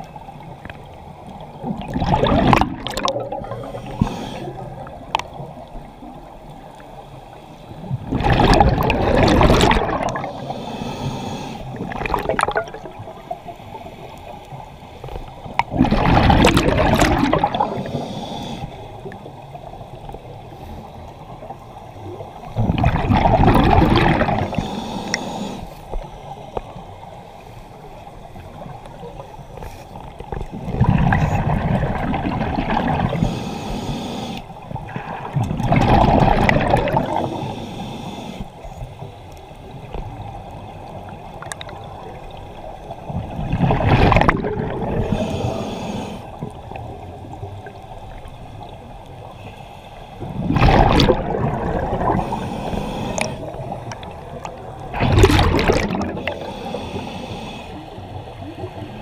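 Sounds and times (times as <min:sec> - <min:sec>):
underwater bubbling exhales: 0:00.0 - 0:06.8, 0:07.7 - 0:14.4, 0:15.3 - 0:20.6, 0:21.2 - 0:26.0, 0:29.9 - 0:38.5, 0:39.6 - 0:49.4, 0:50.2 - 0:59.0
quiet hiss: 0:24.3 - 0:32.4, 0:33.0 - 0:35.6, 0:37.0 - 0:43.4, 0:45.0 - 0:50.4.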